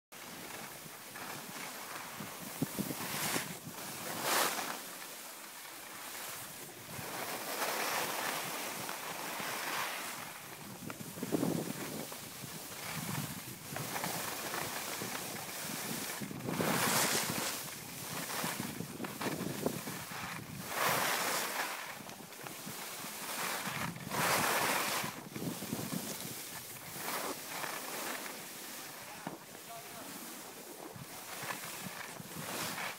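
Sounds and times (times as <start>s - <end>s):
skis scraping over packed snow: 0.2s - 32.9s
wind rushing across microphone: 2.1s - 4.2s, 10.1s - 27.2s.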